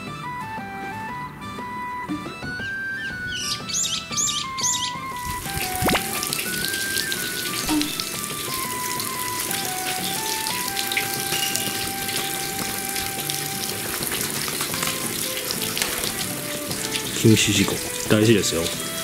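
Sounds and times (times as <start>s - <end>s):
slow background melody: 0.0s - 19.0s
water splashing into stone basin: 5.1s - 19.0s.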